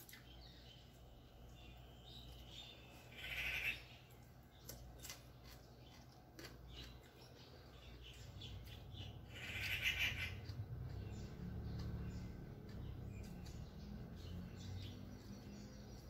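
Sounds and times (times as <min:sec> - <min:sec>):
chewing and lip smacks: 0:04.6 - 0:07.3.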